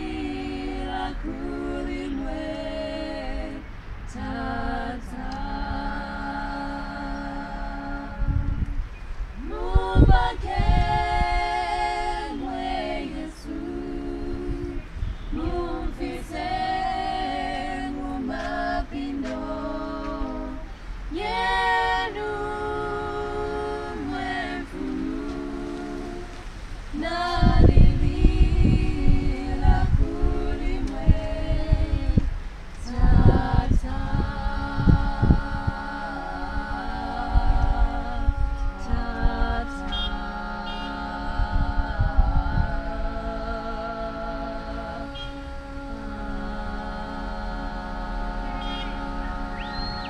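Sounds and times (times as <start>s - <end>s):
low rumbling microphone noise: 0.0s - 50.0s
women singing a cappella: 0.0s - 50.0s.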